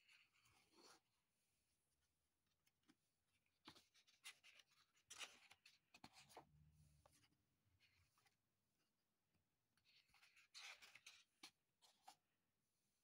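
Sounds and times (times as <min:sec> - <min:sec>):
paper page rustling: 0:02.6 - 0:06.4, 0:09.8 - 0:12.3.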